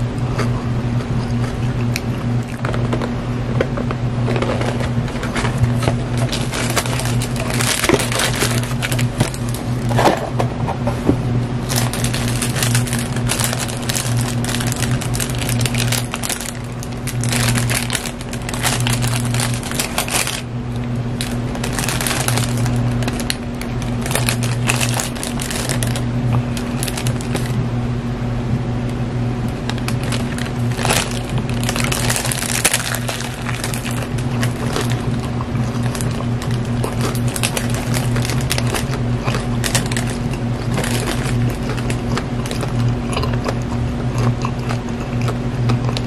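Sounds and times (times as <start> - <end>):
steady low hum: 0.0 - 46.0
paper wrapper crinkling: 4.2 - 10.2, 11.6 - 27.6, 29.7 - 43.0.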